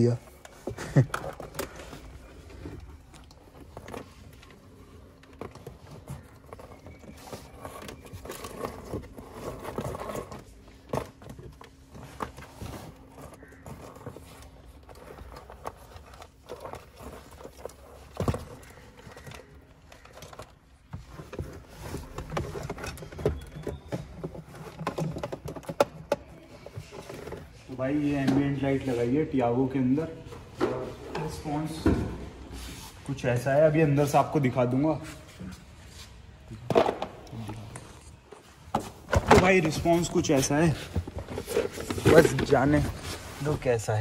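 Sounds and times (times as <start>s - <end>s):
clicks and scrapes of wiring: 0.3s - 27.8s.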